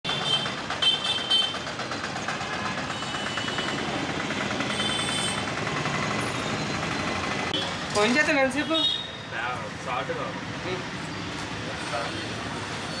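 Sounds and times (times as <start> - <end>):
vehicle engines running: 0.1 - 8.6.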